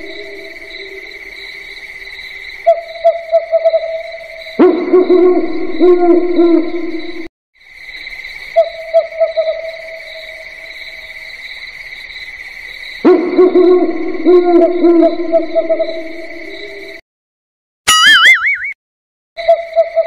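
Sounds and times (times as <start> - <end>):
owl hoots: 4.6 - 6.7, 13.1 - 16.9.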